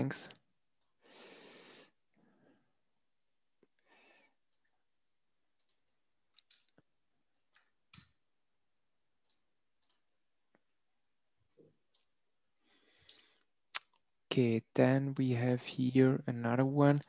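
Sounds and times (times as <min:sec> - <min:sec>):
computer mouse and keyboard clicks: 0:05.6 - 0:06.9, 0:09.2 - 0:10.1.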